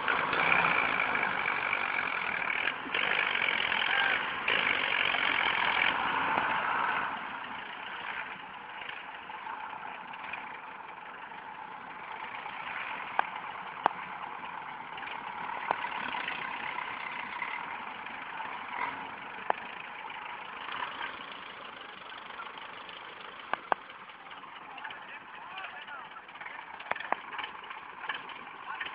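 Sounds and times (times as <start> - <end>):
tractor diesel engine running: 0.0 - 28.9
sharp clicks: 23.4 - 23.9.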